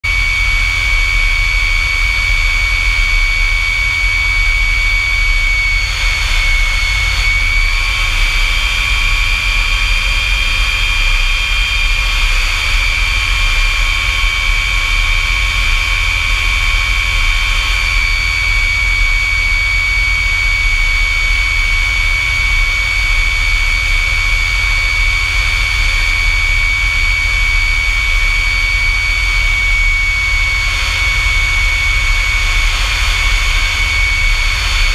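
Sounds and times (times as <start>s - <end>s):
jet engine whine and rumble: 0.0s - 34.9s.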